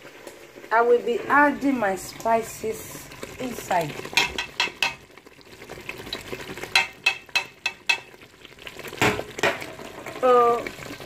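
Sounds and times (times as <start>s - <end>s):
frying sizzle in oil: 0.0s - 11.0s
spoon scraping and knocking pot: 4.1s - 5.0s, 6.7s - 8.2s.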